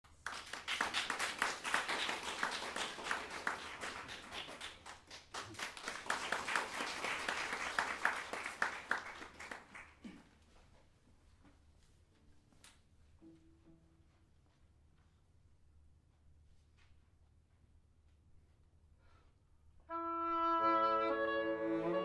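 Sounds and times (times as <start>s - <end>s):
audience applauding: 0.0s - 10.2s.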